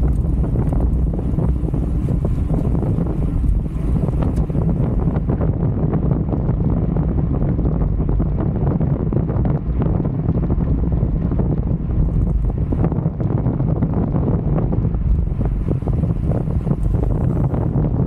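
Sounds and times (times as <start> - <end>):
bicycle clicks and rattles: 0.0 - 5.3
wind rumble on microphone: 0.0 - 18.0.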